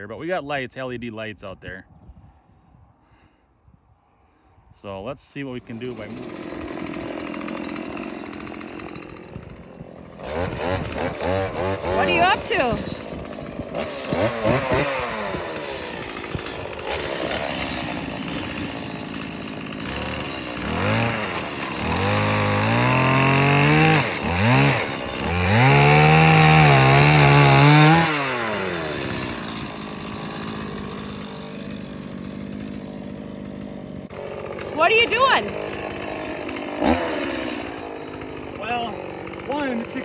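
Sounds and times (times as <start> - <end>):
chainsaw idling and revving: 5.4 - 40.0
chainsaw cutting wood: 5.5 - 40.0.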